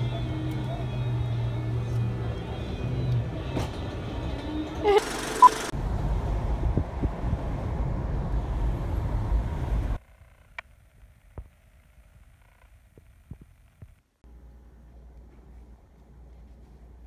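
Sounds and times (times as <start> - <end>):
road and wind noise in car: 0.0 - 11.5.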